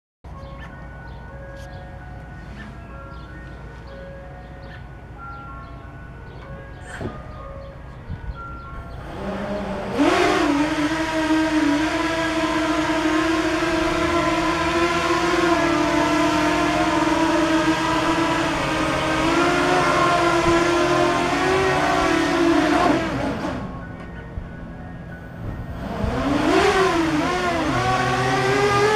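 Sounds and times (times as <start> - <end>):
motor and fan whine: 8.1 - 28.9.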